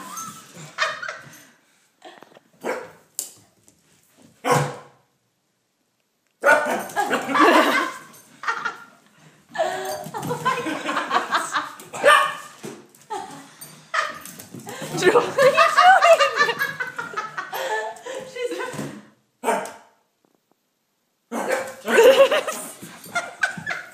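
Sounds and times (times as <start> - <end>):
puppy barking: 4.4 - 5.0, 6.4 - 6.9, 12.0 - 12.5.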